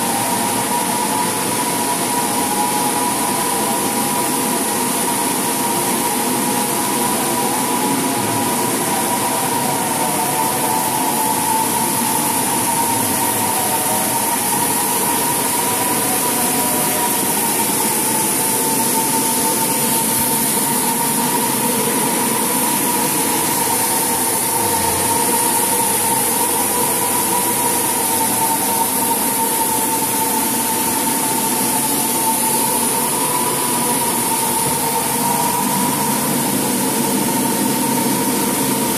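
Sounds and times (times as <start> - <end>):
floor machine motors whining: 0.0 - 38.9
wavering hum: 6.9 - 28.4.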